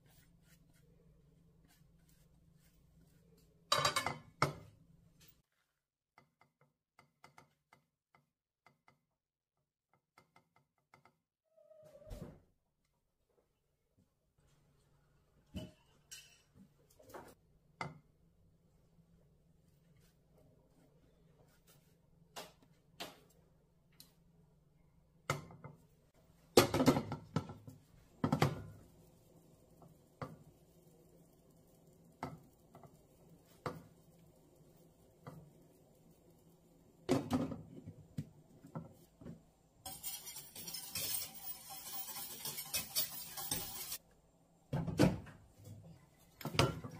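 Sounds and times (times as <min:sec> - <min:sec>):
cookware clinking and knocking: 0:03.7 - 0:04.6.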